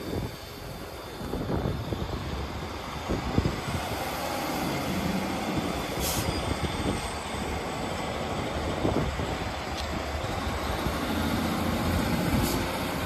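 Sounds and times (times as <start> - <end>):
train diesel engines rumbling: 0.0 - 13.0
short hiss: 12.4 - 12.7.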